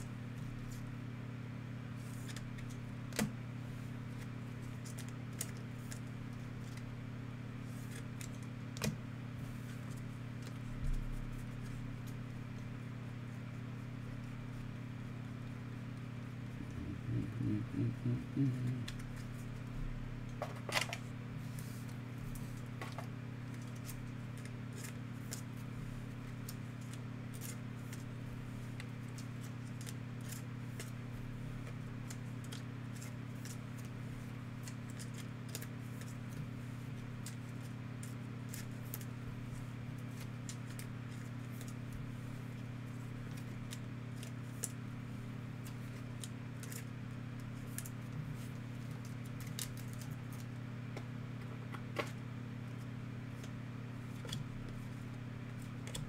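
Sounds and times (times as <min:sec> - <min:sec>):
low electrical hum: 0:00.0 - 0:56.0
trading cards clicking and rustling: 0:21.9 - 0:25.7, 0:26.3 - 0:28.1, 0:28.7 - 0:31.0, 0:31.6 - 0:33.9, 0:34.5 - 0:36.5, 0:45.6 - 0:52.2.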